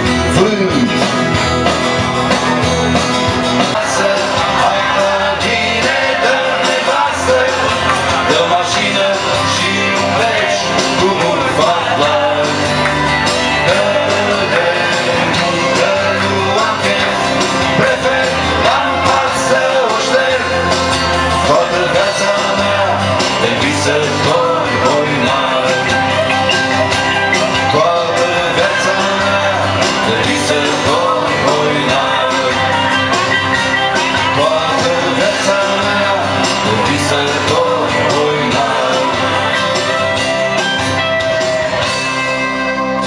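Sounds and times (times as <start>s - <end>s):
acoustic guitar: 0.0s - 43.0s
bass: 0.0s - 43.0s
person singing: 3.6s - 40.6s.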